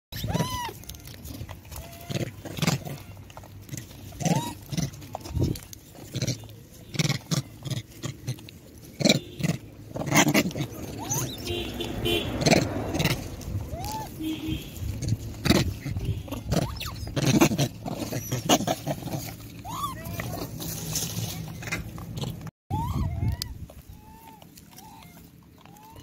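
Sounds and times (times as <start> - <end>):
monkey squeaky calls: 0.1 - 3.3, 4.2 - 5.7, 9.0 - 11.9, 13.6 - 18.8, 19.6 - 20.4, 22.7 - 26.0
scratching and scuffling on gravel: 0.2 - 22.5.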